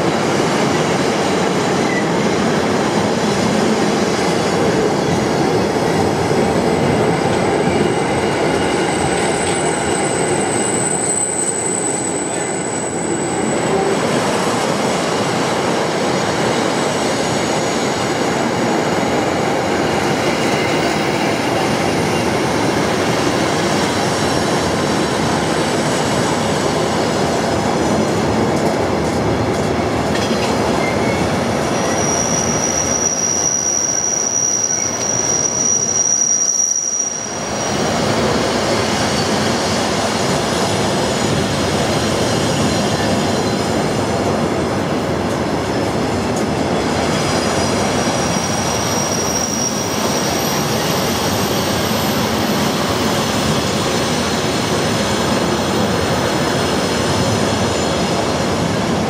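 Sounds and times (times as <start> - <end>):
freight train wheels on rails: 0.0 - 59.0
high wheel squeal: 7.6 - 13.9, 30.8 - 40.0, 47.0 - 54.1.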